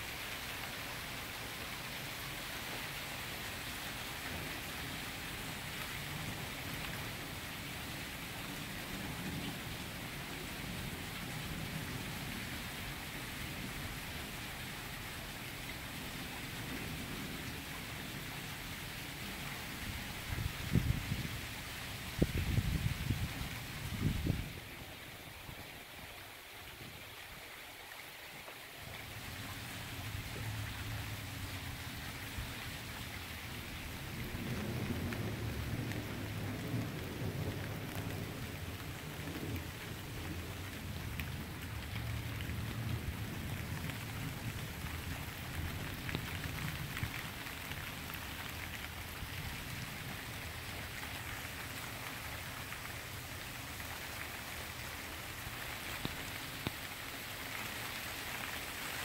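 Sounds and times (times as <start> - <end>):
steady rain falling: 0.0 - 59.0
low rumble of thunder: 19.2 - 24.9, 29.1 - 51.1.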